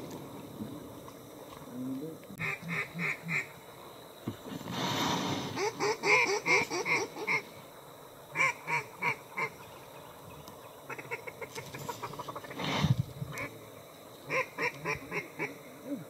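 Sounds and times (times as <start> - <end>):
duck call quacking: 2.4 - 3.5, 8.4 - 9.5, 14.3 - 15.5.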